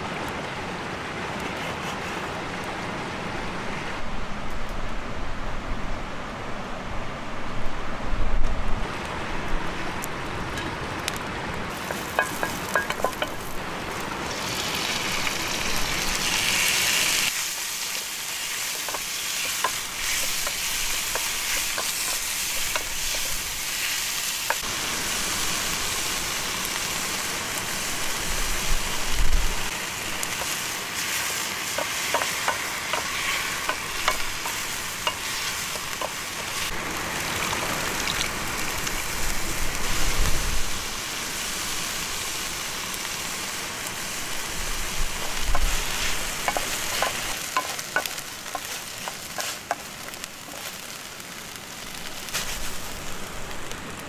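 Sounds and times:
meat sizzling in hot oil: 11.7s - 53.8s
wooden spoon scraping pot: 45.2s - 49.9s.

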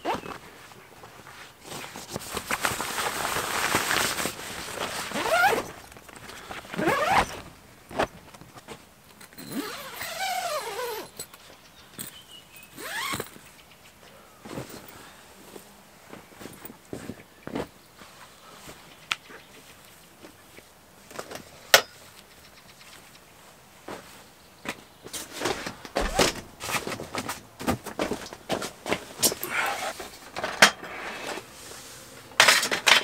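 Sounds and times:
tent zipper being pulled: 1.6s - 5.8s, 6.6s - 8.1s, 9.4s - 11.2s, 12.8s - 13.3s, 25.5s - 26.4s, 29.3s - 30.2s.

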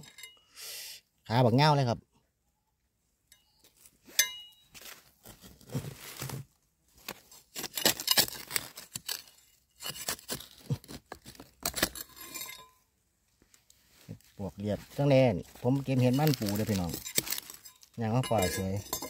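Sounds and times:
knife scraping in stony soil: 3.7s - 12.8s, 13.5s - 19.0s
leaves rustling: 4.8s - 7.1s, 13.5s - 18.8s.

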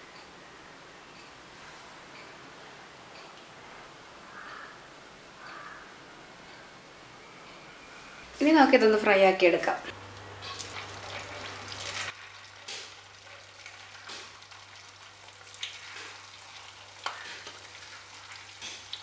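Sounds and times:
food deep-frying in hot oil: 10.3s - 19.0s
burst of sizzling: 10.5s - 19.0s.

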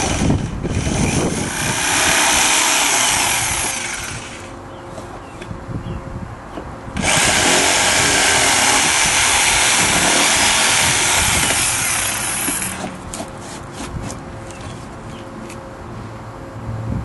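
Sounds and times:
electric jigsaw cutting plastic: 0.0s - 4.5s, 7.0s - 12.9s.

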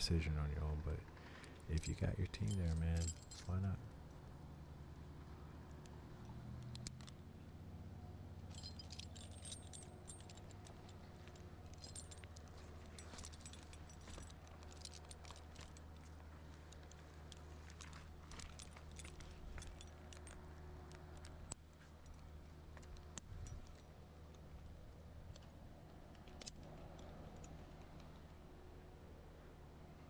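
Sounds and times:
faint low hum: 0.0s - 30.0s
climbing hardware clinking: 1.4s - 4.2s, 8.4s - 28.3s.

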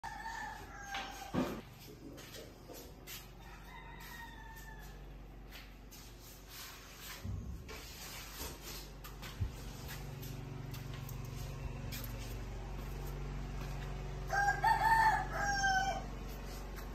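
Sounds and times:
rooster crowing: 0.0s - 1.6s, 3.4s - 5.3s, 14.2s - 16.3s.

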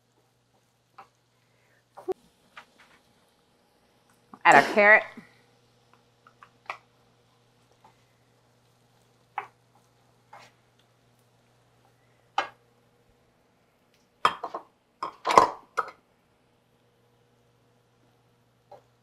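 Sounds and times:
wooden spoon knocking on skillet: 9.3s - 9.9s.

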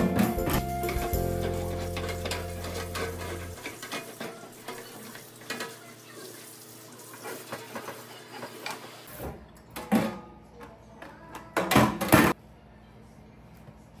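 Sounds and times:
background music: 0.0s - 3.6s.

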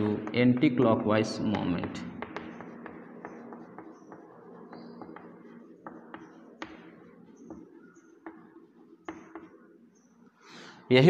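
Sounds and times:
chalk writing on blackboard: 0.0s - 9.7s
chalk squeaks: 1.9s - 9.6s.

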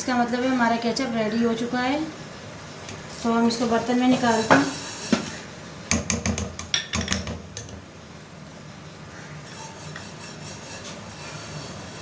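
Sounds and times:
spatula scraping cooking pot: 9.4s - 12.0s.

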